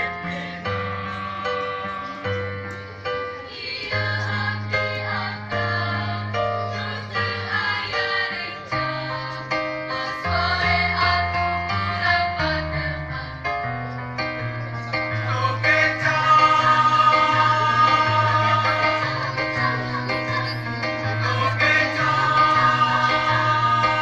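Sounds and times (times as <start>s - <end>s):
choir singing a hymn: 0.0s - 24.0s.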